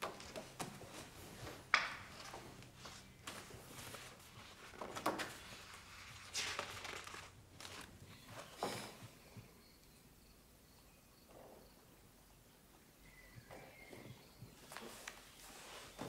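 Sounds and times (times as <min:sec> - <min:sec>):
pages turning: 0:01.7 - 0:08.6.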